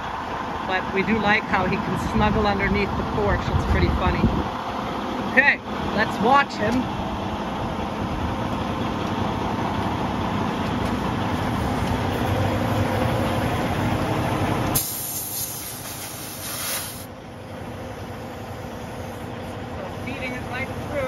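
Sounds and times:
diesel engine idling: 0.0s - 21.0s
compressed air hissing: 14.7s - 17.1s.

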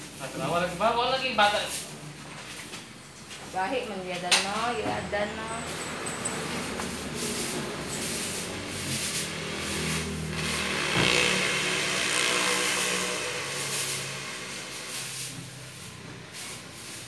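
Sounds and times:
motor vehicle engine drone: 4.9s - 17.0s.

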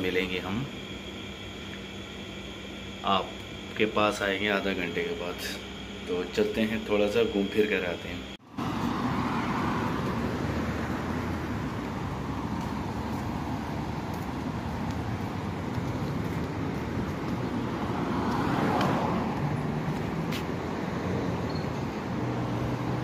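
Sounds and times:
cars driving past: 8.4s - 23.0s.

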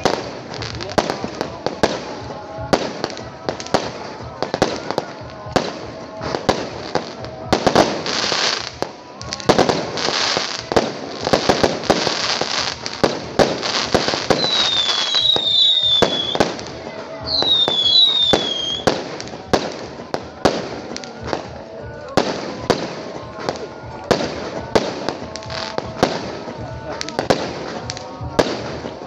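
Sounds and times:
falling fireworks whistles: 0.0s - 29.0s
fireworks bangs: 0.0s - 29.0s
fireworks crackling: 0.0s - 29.0s.

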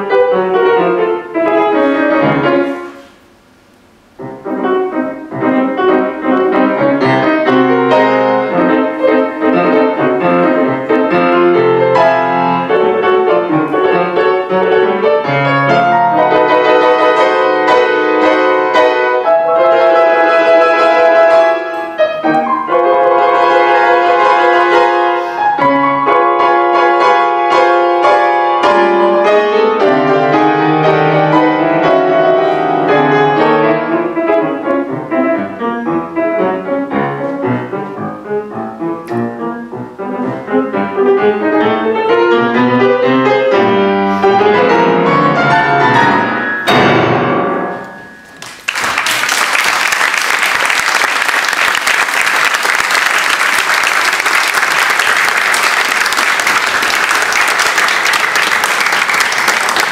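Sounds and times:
grand piano classical piece: 0.0s - 59.9s
audience applause: 48.4s - 59.9s.

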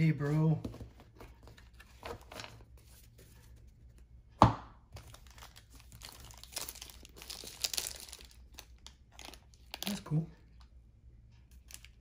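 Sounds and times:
wrapper tearing and crinkling: 5.1s - 10.1s.

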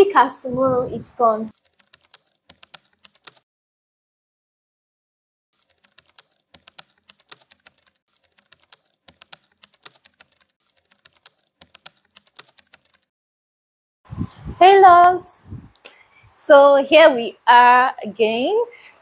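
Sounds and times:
rapid quiet clicks: 1.5s - 3.4s, 5.6s - 13.1s.

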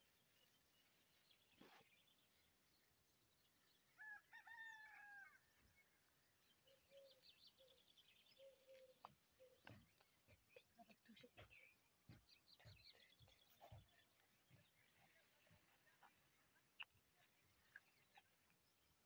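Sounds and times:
rooster crowing: 4.0s - 5.4s
faint bird chirps: 5.8s - 19.0s.

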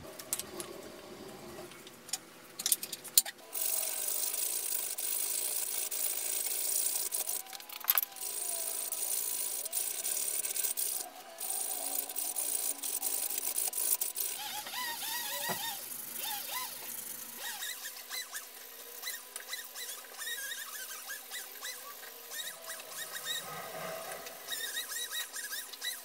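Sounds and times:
squeaky chirps: 24.5s - 26.0s.

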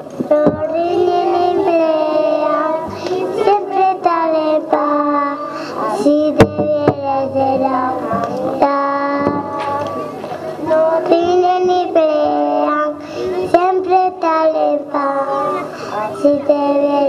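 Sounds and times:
children singing: 0.4s - 17.0s
sharp knock: 6.4s - 7.1s, 9.2s - 9.8s.

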